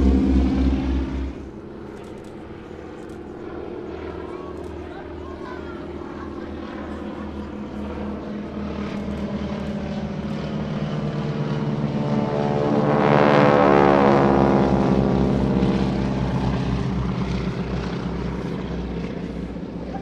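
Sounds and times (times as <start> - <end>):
biplanes propeller drone flying past: 0.0 - 20.0.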